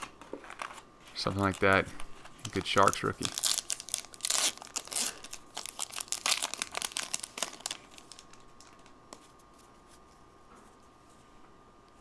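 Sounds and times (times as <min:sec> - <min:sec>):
foil wrapper tearing and crinkling: 0:02.5 - 0:08.9.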